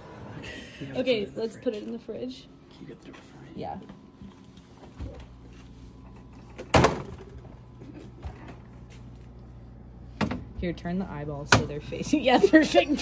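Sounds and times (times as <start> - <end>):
refrigerator hum: 0.0 - 13.0
refrigerator door thump: 6.6 - 7.5.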